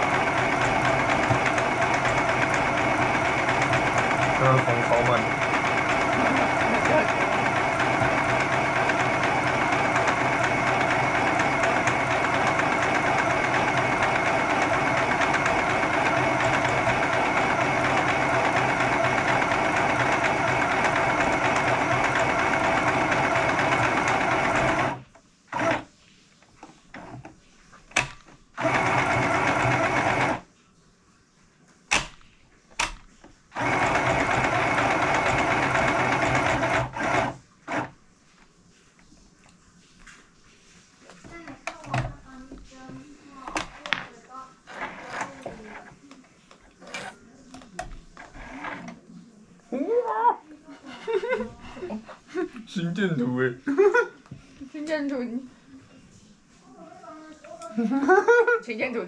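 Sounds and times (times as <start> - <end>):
sewing machine stitching: 0.0 - 25.9, 26.9 - 27.3, 27.9 - 30.5, 32.8 - 37.9, 44.6 - 46.0, 46.6 - 49.0.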